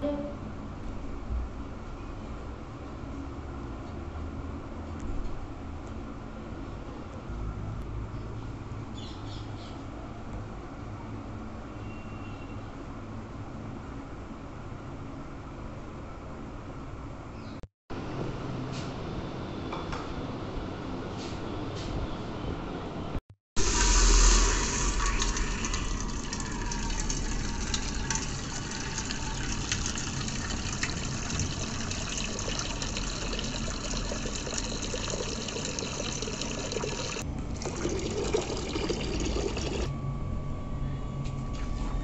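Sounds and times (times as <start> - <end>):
water pouring into a metal pot: 23.6 - 39.9.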